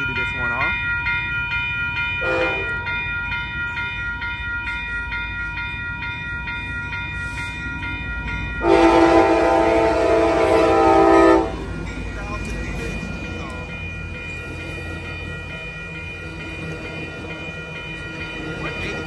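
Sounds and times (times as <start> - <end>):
crossing warning bells ringing: 0.0 - 19.0
train horn blasts: 2.2 - 2.8, 8.6 - 11.7.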